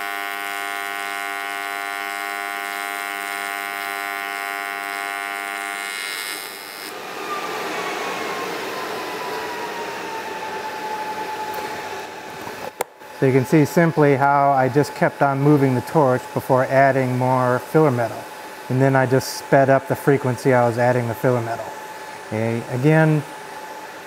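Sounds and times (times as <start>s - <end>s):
welding arc buzzing: 0.0s - 7.0s.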